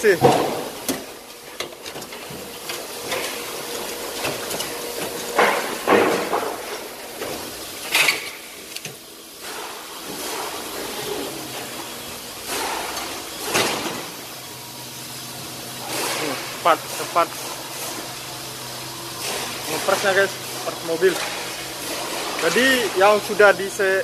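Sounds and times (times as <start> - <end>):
parts knocking and clattering: 0.1 - 9.0.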